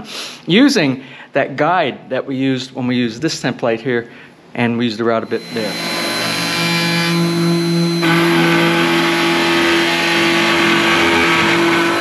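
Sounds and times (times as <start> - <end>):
wood router cutting: 5.2 - 12.0.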